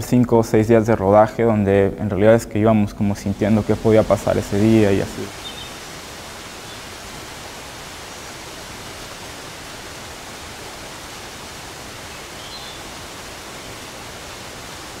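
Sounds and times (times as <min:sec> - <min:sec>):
steady hiss: 0:00.0 - 0:15.0
faint high chirp: 0:12.4 - 0:12.9.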